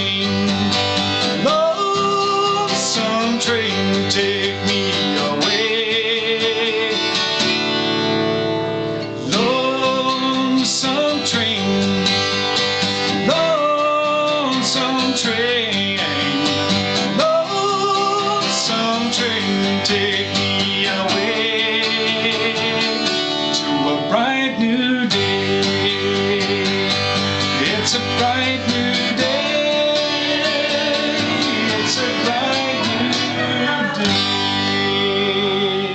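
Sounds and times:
person singing wordless melody: 0.0s - 7.4s, 9.2s - 35.9s
acoustic guitar strumming: 0.0s - 35.9s.

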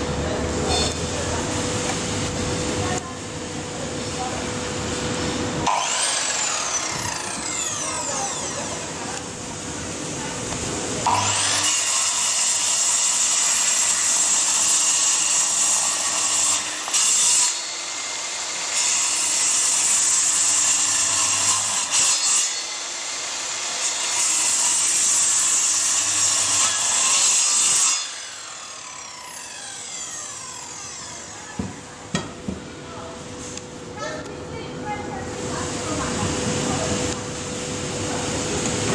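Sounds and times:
saw motor winding down: 5.6s - 9.5s, 11.0s - 31.6s
circular saw cutting wood: 5.6s - 32.0s.

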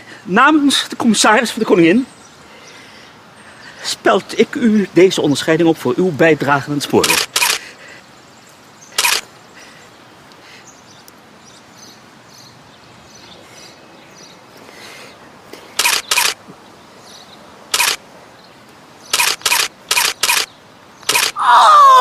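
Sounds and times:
camera shutter whirring click: 7.0s - 7.6s, 9.0s - 9.3s, 15.8s - 16.4s, 17.7s - 18.0s, 19.1s - 20.5s, 21.1s - 21.4s.

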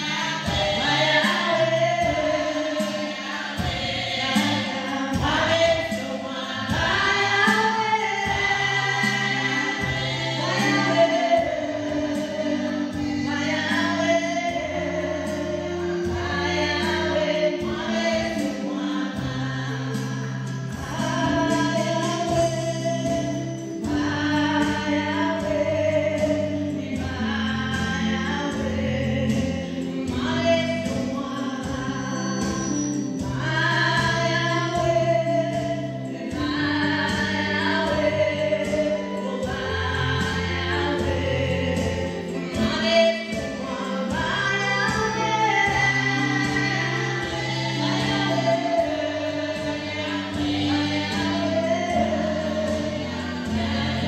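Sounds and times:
bass line accompaniment: 0.0s - 54.0s
women singing gospel: 0.0s - 54.0s.

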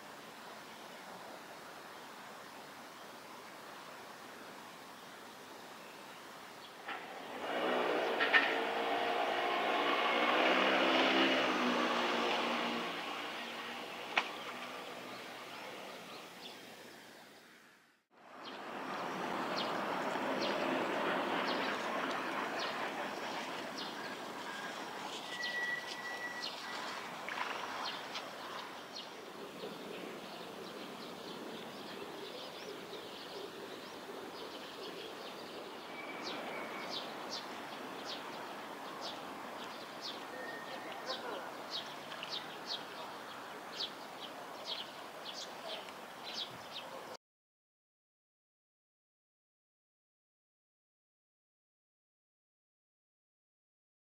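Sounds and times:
rushing river background: 0.0s - 47.2s
high bird chirps: 24.6s - 27.0s.

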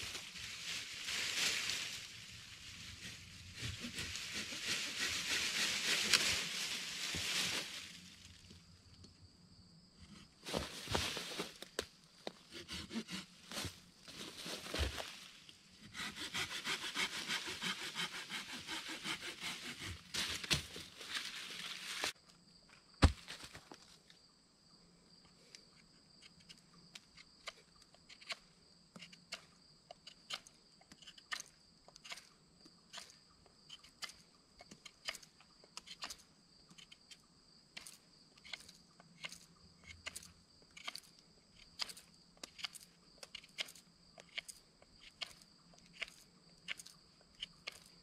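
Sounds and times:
insects droning: 0.0s - 48.0s
knife carving wooden stick: 3.6s - 5.4s, 12.5s - 13.3s, 15.8s - 20.0s, 33.7s - 37.1s.

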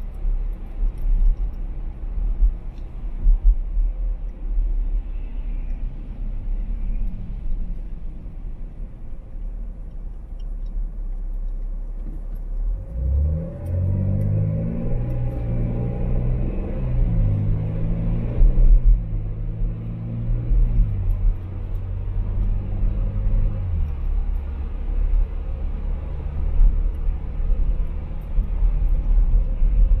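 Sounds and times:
car engine: 0.0s - 30.0s
road noise: 0.0s - 30.0s.

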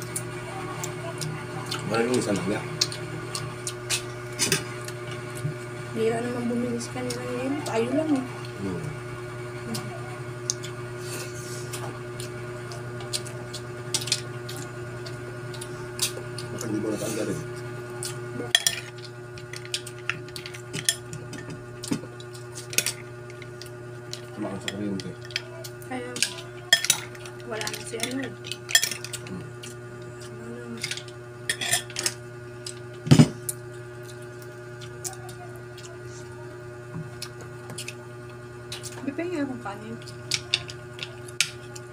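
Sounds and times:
steady low hum: 0.0s - 41.9s
wet chewing and mouth clicks: 0.1s - 4.1s, 10.4s - 10.8s, 11.7s - 16.8s, 37.0s - 38.0s, 38.7s - 39.0s.

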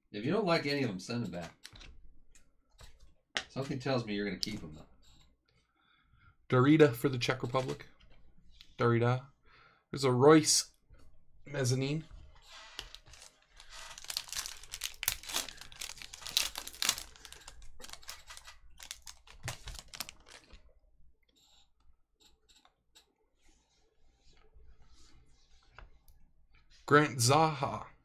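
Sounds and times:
foil pack crackling: 12.9s - 20.6s.

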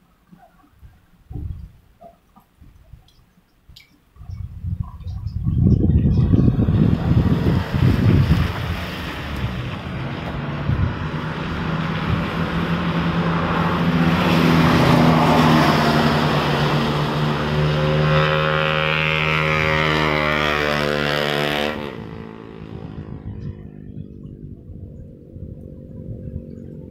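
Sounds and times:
vehicle driving past on wet road: 6.4s - 24.3s
tyres hissing on wet road: 6.9s - 18.9s.

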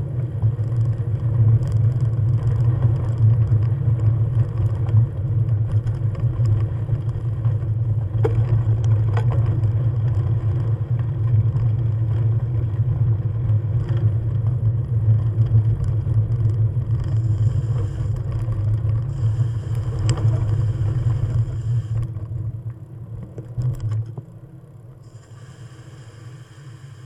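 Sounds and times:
small vehicle engine rumble: 0.0s - 27.0s
faint hiss: 19.1s - 22.0s, 25.0s - 27.0s.

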